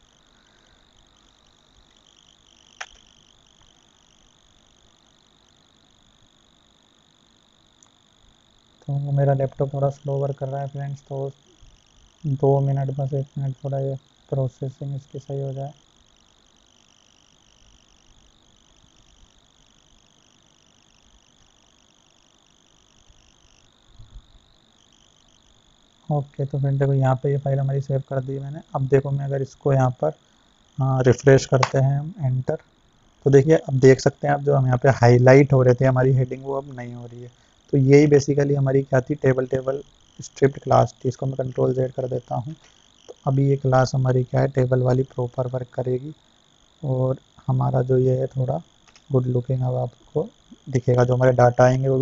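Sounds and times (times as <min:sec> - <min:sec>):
faint ticks: 0:00.0 - 0:09.0, 0:09.6 - 0:33.3, 0:39.1 - 0:43.7, 0:44.3 - 0:50.9
steady background hiss: 0:00.0 - 0:52.0
sharp click: 0:02.8 - 0:03.2, 0:31.6 - 0:31.8, 0:48.8 - 0:49.1.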